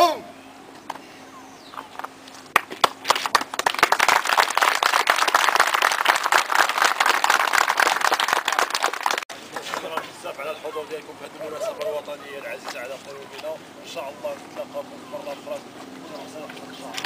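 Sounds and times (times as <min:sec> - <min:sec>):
shouted call: 0:00.0 - 0:00.4
crowd clapping: 0:02.5 - 0:10.3.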